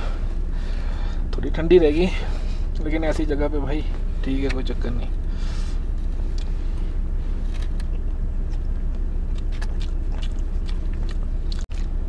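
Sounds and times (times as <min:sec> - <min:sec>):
low rumble: 0:00.0 - 0:12.0
person eating crunches: 0:05.9 - 0:12.0.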